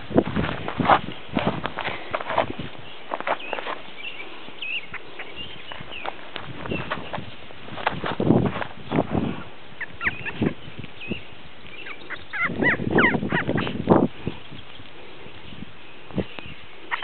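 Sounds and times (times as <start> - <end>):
rustling in grass: 0.0 - 17.0
high squeaky animal chirps: 9.8 - 10.6, 11.8 - 13.8.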